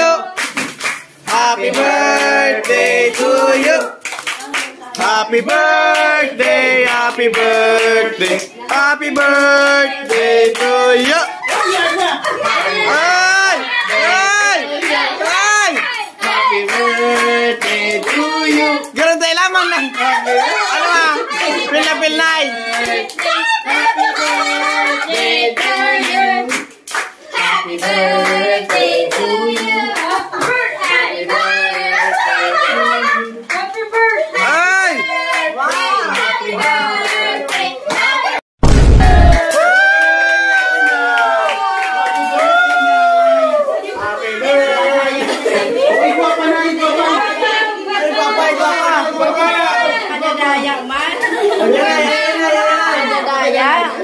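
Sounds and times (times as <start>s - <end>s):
voices singing: 0.0s - 0.4s, 1.2s - 19.1s, 19.7s - 38.4s, 42.4s - 54.0s
hands clapping: 0.4s - 5.1s, 25.1s - 27.2s
people cheering and calling out: 10.7s - 17.4s, 18.2s - 25.2s, 37.9s - 54.0s.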